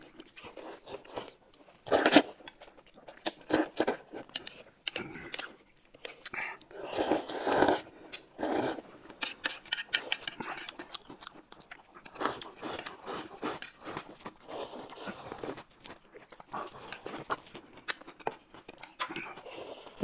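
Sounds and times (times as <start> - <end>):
chewing: 0.0 - 20.0
slurping broth: 0.5 - 2.4, 6.7 - 10.6.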